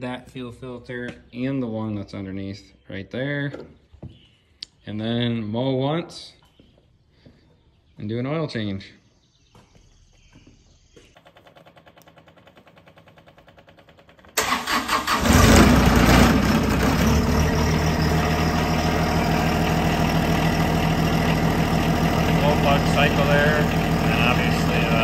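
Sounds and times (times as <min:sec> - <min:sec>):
diesel engine cranking and idling: 0:11.8 - 0:25.0.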